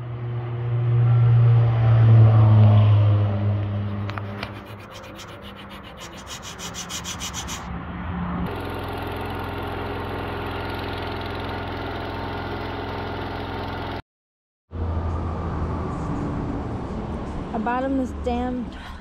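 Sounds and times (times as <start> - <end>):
hand file scraping metal: 3.9 - 7.7
welder generator engine running: 8.5 - 14.0.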